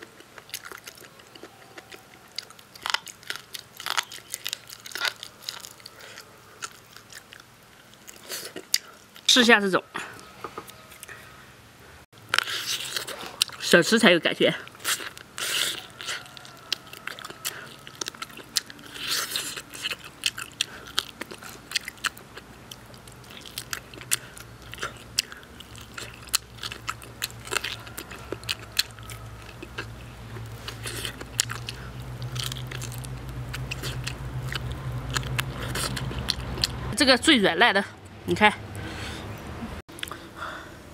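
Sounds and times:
person chewing meat: 0.0 - 9.3, 12.2 - 13.7, 14.6 - 36.9, 38.9 - 40.4
low steady hum: 0.0 - 40.9.

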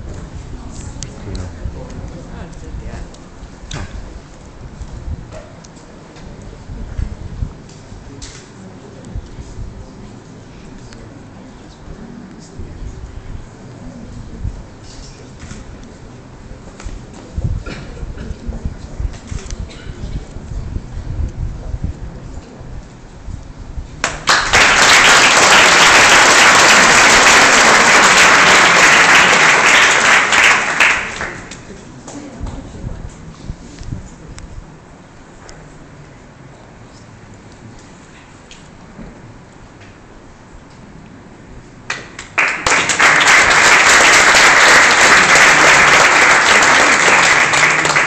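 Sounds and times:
room murmur: 0.0 - 48.0
audience applauding: 24.0 - 31.7, 41.9 - 48.0.

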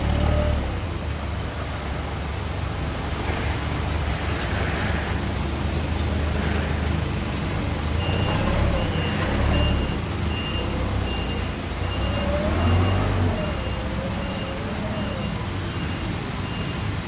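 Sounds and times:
forklift engine: 0.0 - 16.6
forklift reversing alarm beeps: 8.0 - 17.0.

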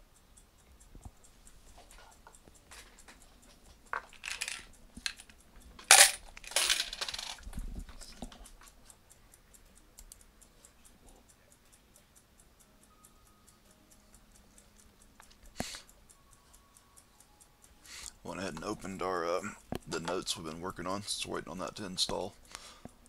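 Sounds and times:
egg timer ticking: 0.0 - 6.6, 7.3 - 23.0
clattering handling noises: 3.9 - 8.2.

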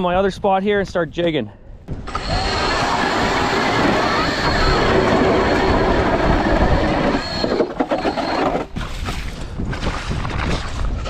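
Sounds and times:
electric ice auger drilling: 2.0 - 8.9.

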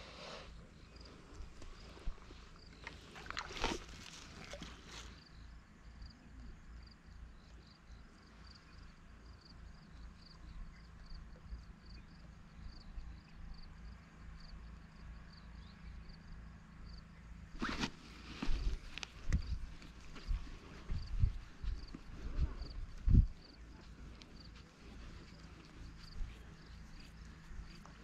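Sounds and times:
faint low rumble: 0.0 - 28.0
cricket chirping: 0.6 - 17.4, 19.3 - 28.0
brief rustles: 17.6 - 21.0.

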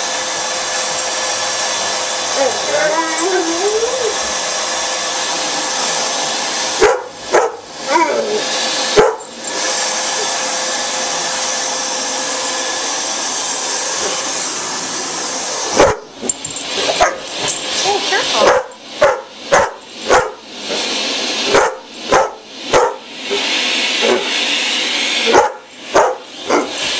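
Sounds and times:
vacuum cleaner running: 0.0 - 26.9
dogs barking: 6.8 - 8.2, 8.9 - 9.4, 15.7 - 16.2, 16.8 - 17.4, 18.4 - 20.4, 21.5 - 23.0, 25.3 - 26.8.

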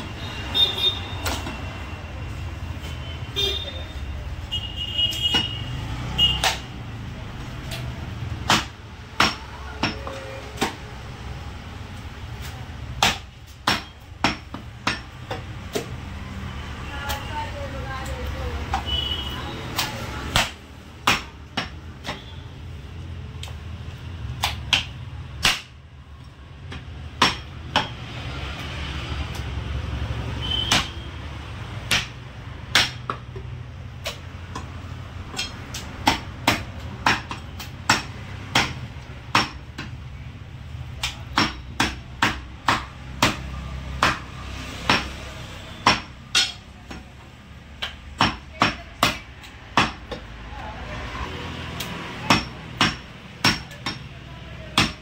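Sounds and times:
cleaver chopping meat and bone: 5.3 - 6.8, 7.6 - 11.1, 12.4 - 16.2, 19.6 - 22.5, 23.4 - 40.1, 40.8 - 50.5, 51.6 - 55.0.

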